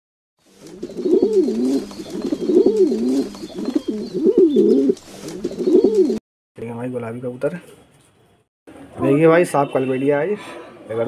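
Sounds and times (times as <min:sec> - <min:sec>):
pigeon cooing: 0:00.7 - 0:06.2.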